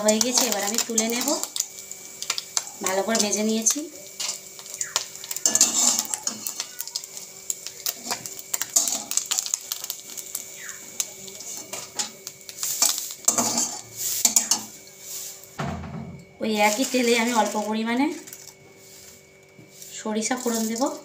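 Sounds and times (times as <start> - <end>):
metal spatula scraping metal pan: 5.4 - 6.7, 12.6 - 15.4.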